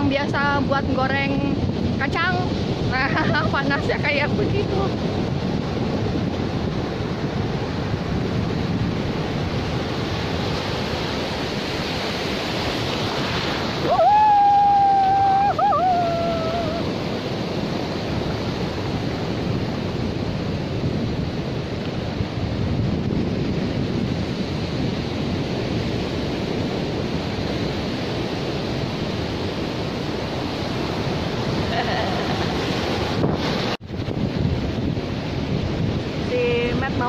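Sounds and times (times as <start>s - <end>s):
ocean surf washing: 0.0s - 37.0s
wind buffeting microphone: 0.0s - 37.0s.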